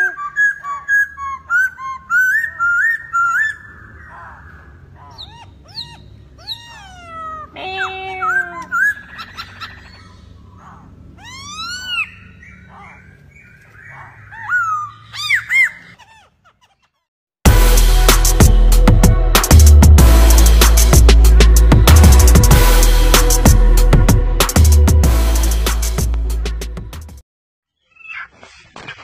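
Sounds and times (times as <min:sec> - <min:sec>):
bird whistling song: 0:00.0 - 0:04.2, 0:05.1 - 0:06.8, 0:08.2 - 0:10.4, 0:11.2 - 0:16.0.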